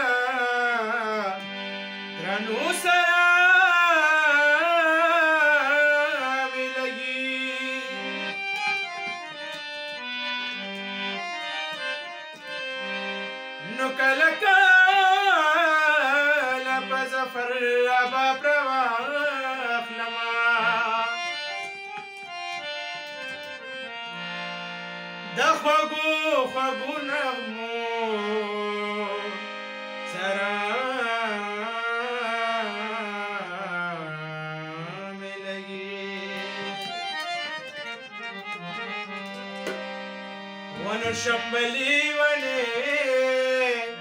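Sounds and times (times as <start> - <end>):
man singing: 0.0 - 1.5, 2.2 - 8.4, 13.6 - 21.7, 25.2 - 37.0, 40.7 - 44.0
harmonium melody: 0.0 - 44.0
tabla: 40.7 - 43.8.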